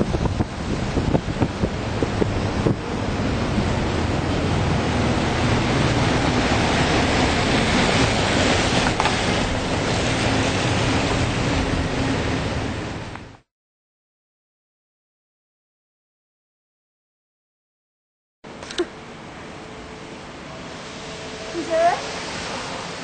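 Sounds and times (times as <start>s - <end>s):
loud rushing noise: 0.0s - 13.1s, 19.3s - 23.0s.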